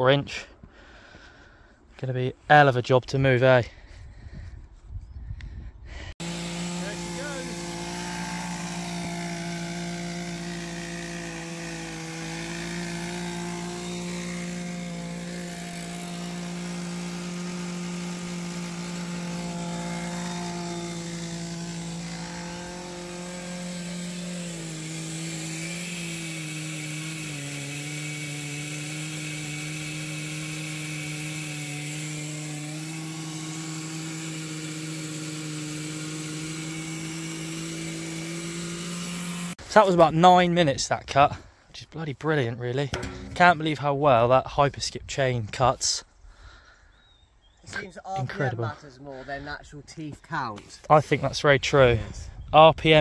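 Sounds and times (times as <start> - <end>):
chainsaw cutting wood: 6.1 - 40.1, 42.9 - 43.8.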